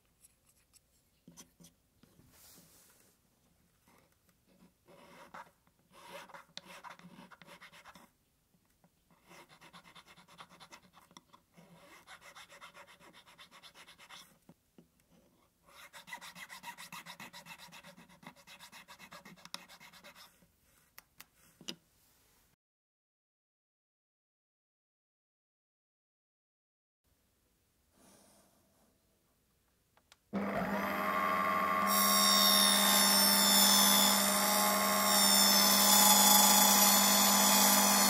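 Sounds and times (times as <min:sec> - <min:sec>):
needle file rasping wood: 0:09.2 - 0:14.3, 0:15.7 - 0:20.4.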